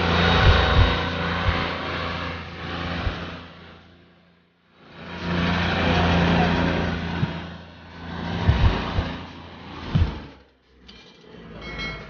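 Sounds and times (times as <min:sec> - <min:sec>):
low thumps: 0:00.0 - 0:03.5, 0:08.3 - 0:10.4
toy motors humming: 0:00.0 - 0:04.2, 0:04.8 - 0:11.6.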